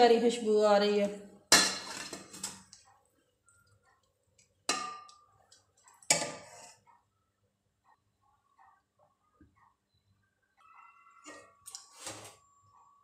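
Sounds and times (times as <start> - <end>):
metal spoon clanking on pot: 1.5 - 2.8, 4.6 - 6.8.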